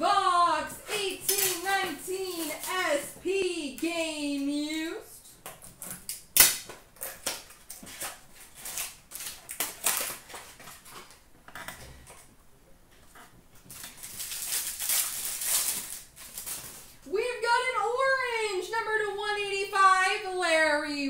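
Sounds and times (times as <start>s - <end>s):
cards rustling: 0.8s - 3.2s, 13.7s - 17.0s
foil wrapper tearing and crinkling: 1.1s - 3.0s, 5.6s - 11.2s, 13.6s - 17.0s.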